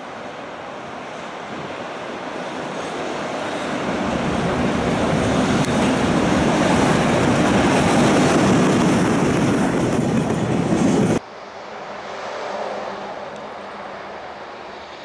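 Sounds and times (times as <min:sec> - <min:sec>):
freight train wheels rumbling: 0:00.0 - 0:11.2.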